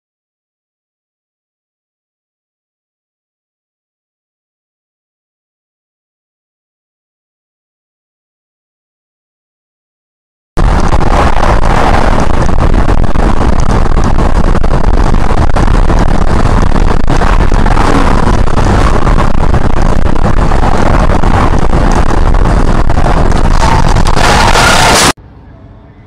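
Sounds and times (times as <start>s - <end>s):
car road and wind noise: 10.6s - 26.0s.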